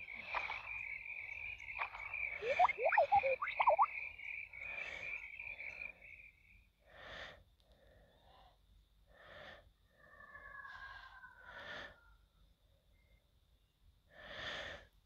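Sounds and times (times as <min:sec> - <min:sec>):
steady whistle-like tone: 0:01.8 - 0:03.9.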